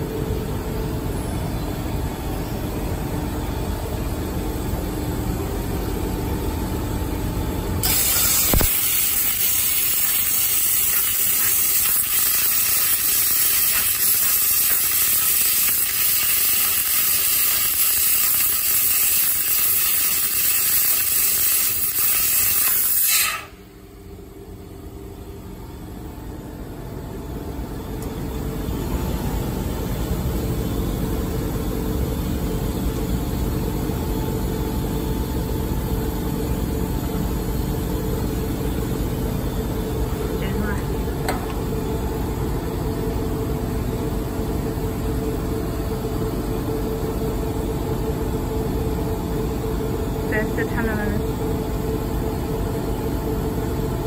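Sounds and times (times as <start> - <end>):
laser cutter gas hiss: 7.8 - 23.7.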